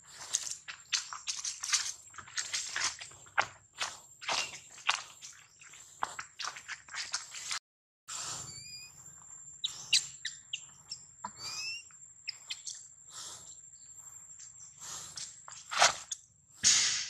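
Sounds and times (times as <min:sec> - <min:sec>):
rising chirp calls: 0:08.5 - 0:09.0, 0:09.6 - 0:13.9.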